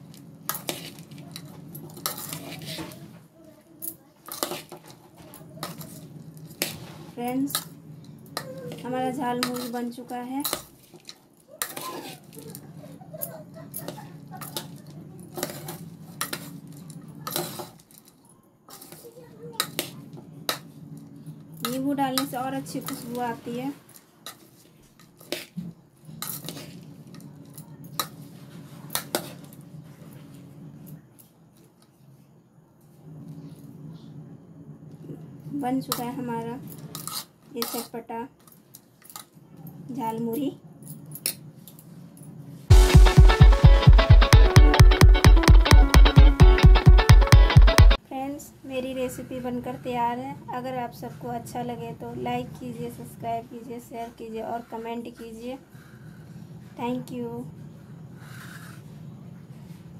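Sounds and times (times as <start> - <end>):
puffed rice rustling in a metal bowl: 0.0 - 3.2, 3.8 - 20.8, 21.6 - 30.4
faint low hum: 25.6 - 37.1.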